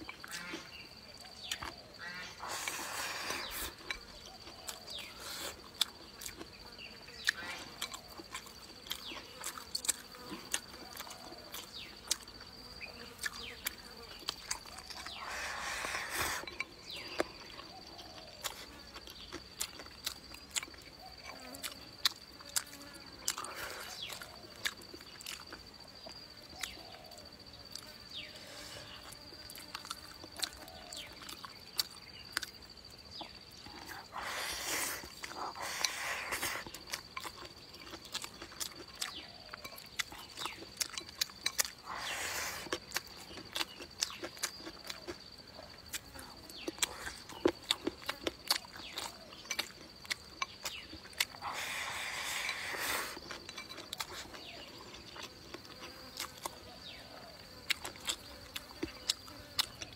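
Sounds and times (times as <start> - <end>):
scraping and slurping rice: 2.4 - 4.0, 15.0 - 16.8, 33.8 - 37.0, 41.8 - 42.9, 51.4 - 55.1
chewing and lip smacks: 3.5 - 12.3, 16.2 - 27.1, 28.9 - 59.9.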